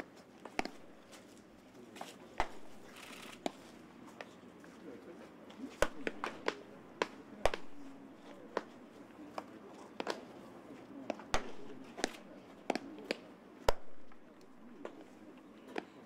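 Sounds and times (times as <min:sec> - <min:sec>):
baseballs smacking into leather mitts: 0:00.0 - 0:01.2, 0:02.4 - 0:03.6, 0:05.7 - 0:10.3, 0:11.1 - 0:16.0.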